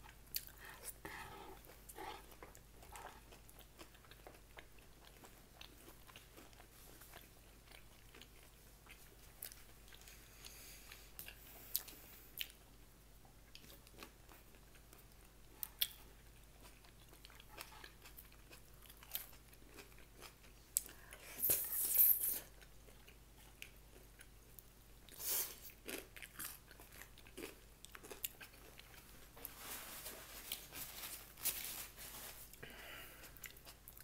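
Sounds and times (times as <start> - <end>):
person chewing food: 0.0 - 21.6, 22.4 - 29.6, 32.4 - 34.0
food crunches: 25.7 - 29.1.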